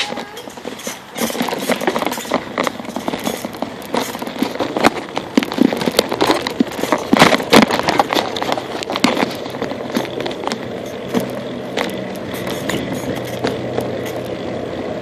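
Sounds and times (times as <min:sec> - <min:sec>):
bicycle knocks and rattles: 0:00.0 - 0:15.0
steady rushing noise: 0:00.0 - 0:15.0.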